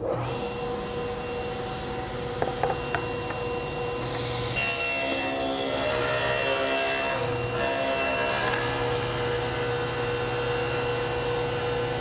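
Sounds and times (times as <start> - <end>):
table saw running: 0.0 - 12.0
board knocking on table: 2.4 - 3.0.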